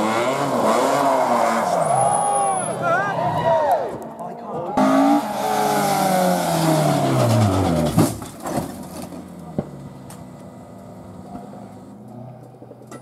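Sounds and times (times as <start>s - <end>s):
rally car engine passing: 4.8s - 8.0s.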